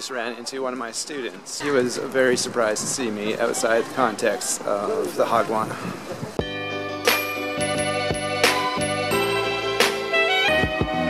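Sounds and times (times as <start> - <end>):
background music with held chords: 6.4 - 11.0.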